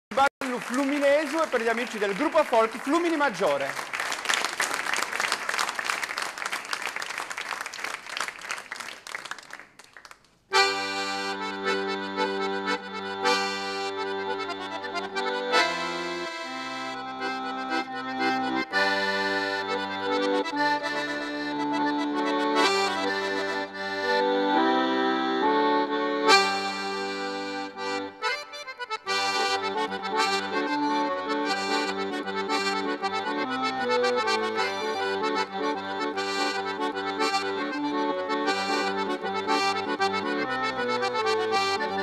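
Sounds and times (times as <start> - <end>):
applause: 0.1 - 10.5
accordion dance music: 0.1 - 42.0.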